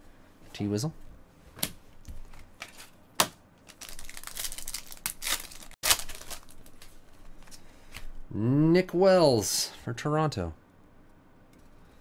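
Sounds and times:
foil wrapper crinkling: 3.6 - 7.5.

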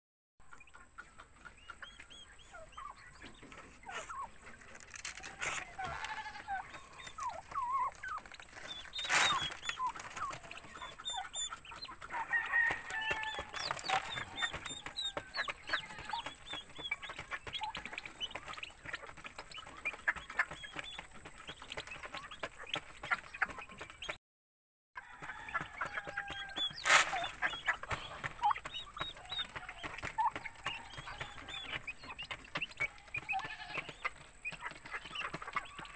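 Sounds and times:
turkey hen clucking: 0.4 - 24.2, 25.0 - 35.9
turkey poults peeping: 0.4 - 24.2, 25.0 - 35.9.

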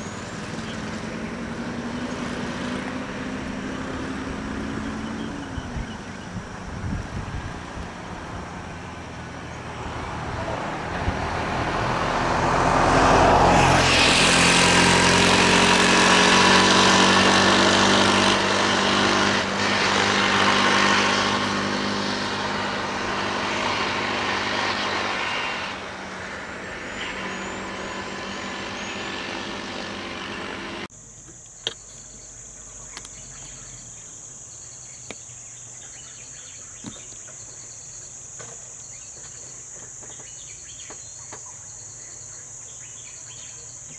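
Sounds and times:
vehicles driving past: 0.0 - 30.9.

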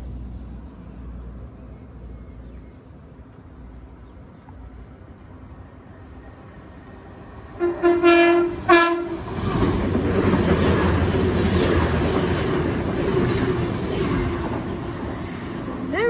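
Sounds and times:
train passing at speed: 0.0 - 16.0
train horn blasts: 7.6 - 9.3.

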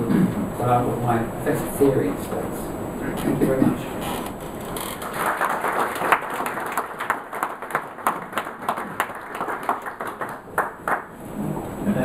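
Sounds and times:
audience applauding: 4.8 - 11.2.

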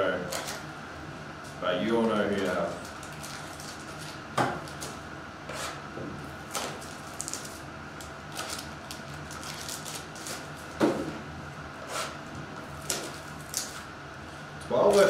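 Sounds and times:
foil crinkling: 2.1 - 4.8, 6.8 - 7.7, 8.3 - 10.8.

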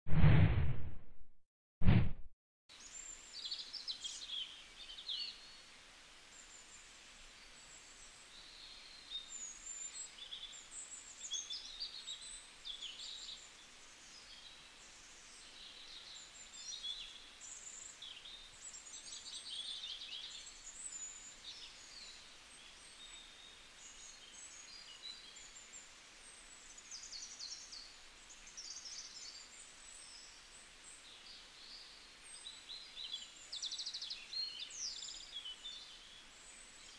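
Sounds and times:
faint steady hiss: 2.7 - 36.9
small birds chirping: 7.4 - 36.9.

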